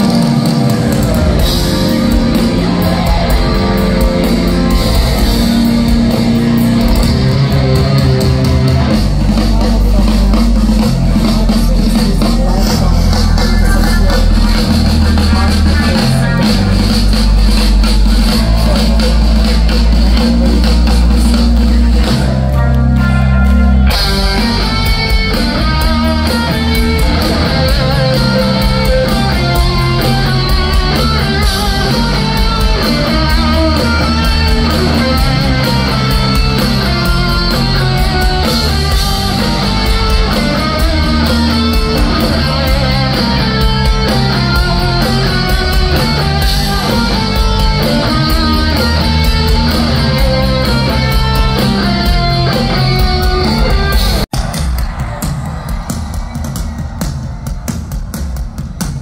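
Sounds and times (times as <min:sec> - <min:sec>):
heavy metal band playing live: 0:00.0 - 0:59.0.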